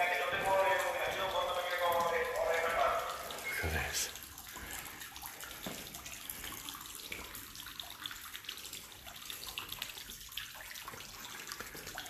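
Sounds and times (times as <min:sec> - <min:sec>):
water trickling: 0:00.0 - 0:12.0.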